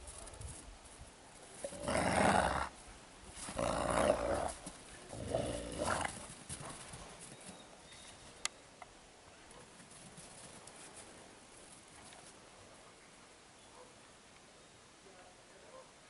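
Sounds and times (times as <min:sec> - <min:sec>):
wolves snarling and growling: 0:01.6 - 0:02.8, 0:03.4 - 0:06.8.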